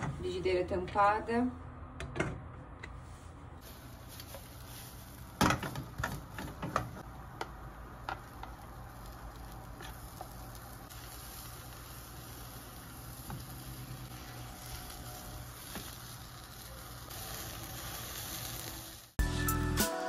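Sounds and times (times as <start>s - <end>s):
batter hissing in frying pan: 3.6s - 6.4s, 7.6s - 19.2s.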